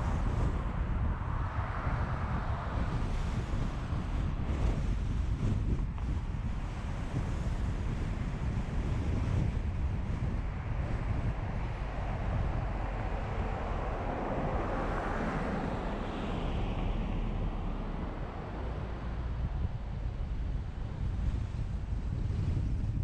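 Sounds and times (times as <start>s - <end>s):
car road noise: 0.0s - 23.0s
passing vehicle whoosh: 0.0s - 23.0s
wind buffeting microphone: 0.0s - 23.0s.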